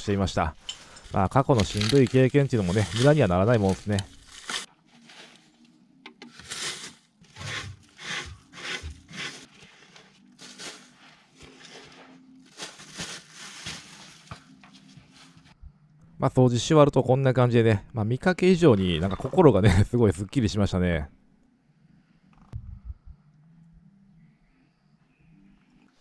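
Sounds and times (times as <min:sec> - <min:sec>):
hands scraping debris off dirt: 0:00.8 - 0:05.4, 0:06.3 - 0:14.4.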